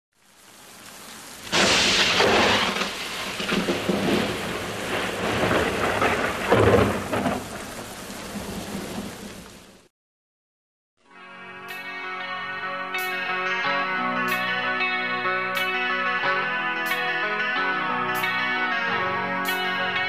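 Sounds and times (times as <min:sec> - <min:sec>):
rain hissing: 0:00.1 - 0:09.9
thunder rumbling: 0:01.3 - 0:09.8
thunder crack: 0:01.4 - 0:09.5.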